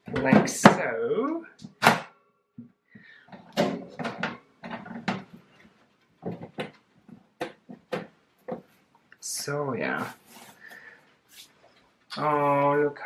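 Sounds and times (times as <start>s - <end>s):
plastic cage knocks and clatters: 3.3s - 8.7s.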